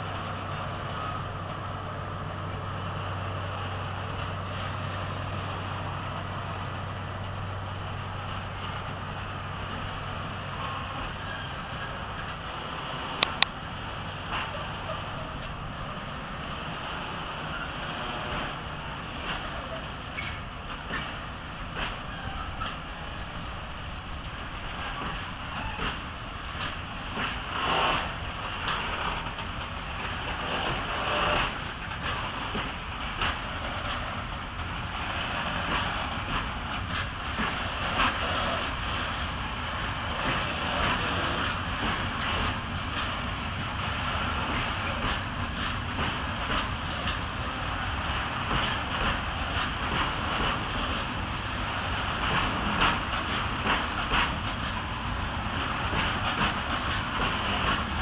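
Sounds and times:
train wheels rumbling on rail: 0.0 - 58.0
wagon clicks and clanks: 24.4 - 58.0.

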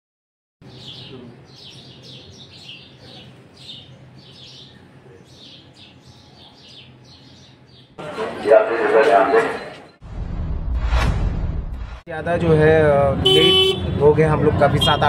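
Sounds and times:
birds chirping: 0.6 - 10.0.

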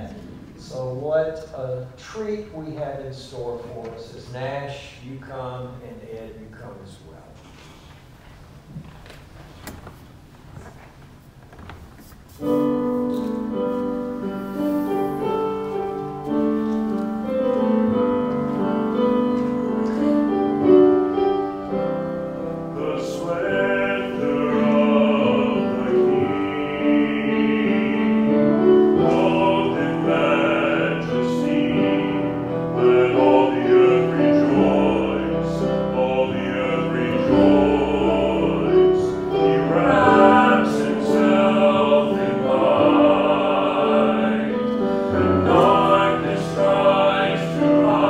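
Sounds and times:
hymn on piano: 0.0 - 7.6, 12.4 - 48.0
voices singing: 22.6 - 48.0.

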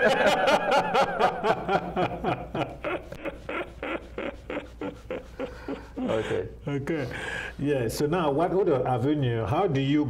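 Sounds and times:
men chuckling softly: 1.0 - 6.6.

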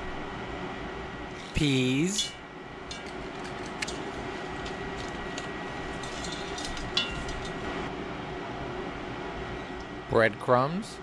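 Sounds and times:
light clicks of spatula stirring: 2.9 - 7.8.

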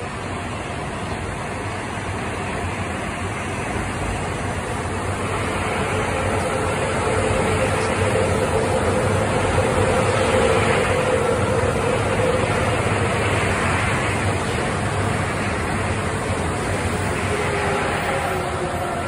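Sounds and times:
subway train rumbling past: 0.0 - 19.0
humming tone: 5.1 - 14.8.

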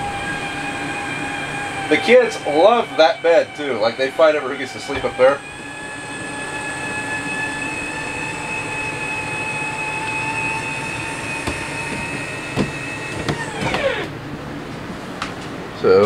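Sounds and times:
electric motor whine: 0.0 - 14.4.

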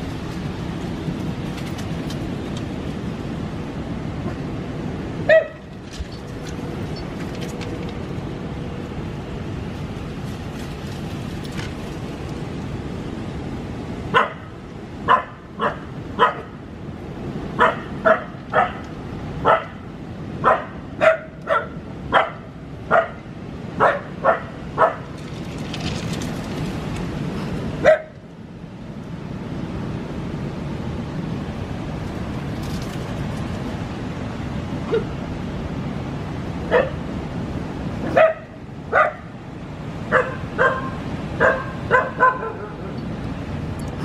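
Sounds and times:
puppy barking: 5.3 - 5.7, 14.1 - 14.5, 15.1 - 16.5, 17.6 - 18.8, 19.4 - 19.8, 20.4 - 23.2, 23.8 - 25.1, 27.8 - 28.2, 36.7 - 37.0, 38.1 - 39.3, 40.1 - 42.9.

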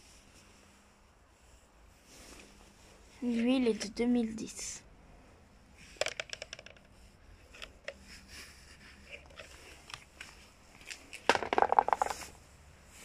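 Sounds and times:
plastic hubcaps rattling clatter: 5.9 - 8.1, 9.1 - 12.3
plastic hubcaps clicking and knocking: 6.0 - 8.0, 10.8 - 12.3.

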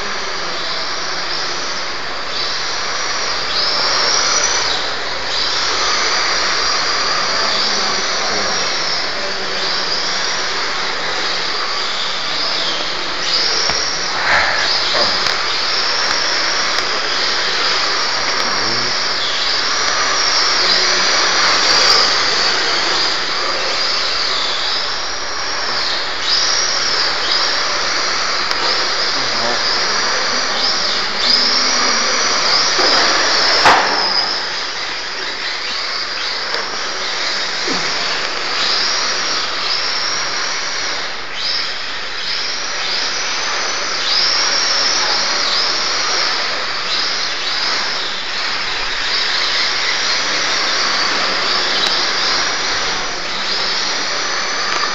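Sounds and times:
electric motors whining: 0.0 - 54.9
sharp knock: 32.8 - 34.3.

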